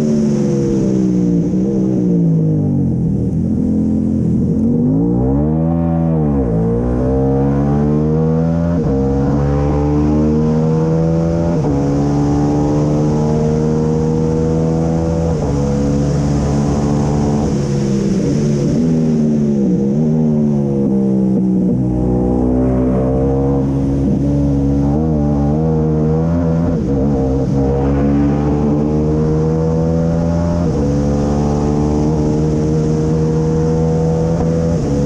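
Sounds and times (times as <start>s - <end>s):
racing engine revving through gears: 4.4s - 35.0s
wind rushing: 26.0s - 34.2s.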